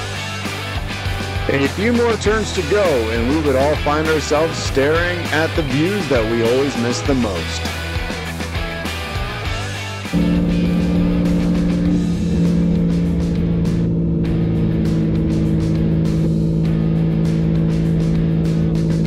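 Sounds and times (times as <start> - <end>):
guitar music: 10.1 - 19.0
truck engine droning: 10.1 - 19.0.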